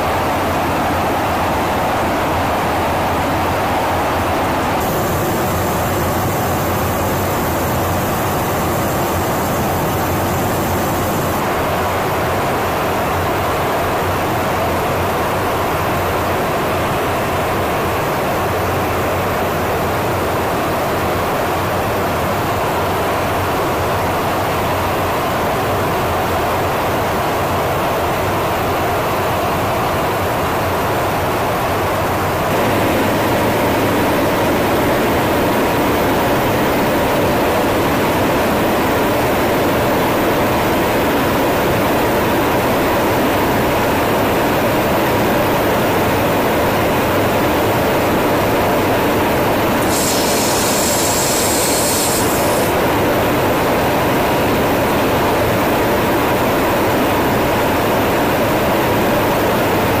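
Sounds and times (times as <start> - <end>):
jet engine drone and airflow: 0.0 - 60.0
sharp hiss: 4.8 - 11.4, 49.8 - 52.8.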